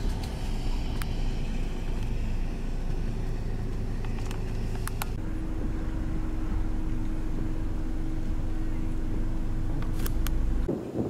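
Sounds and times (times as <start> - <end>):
vehicle engine idling: 0.0 - 10.7
steady hum: 0.0 - 10.8.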